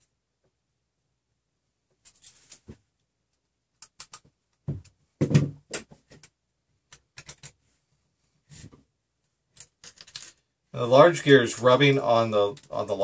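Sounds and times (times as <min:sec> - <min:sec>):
plastic parts clicking: 0:09.5 - 0:10.4.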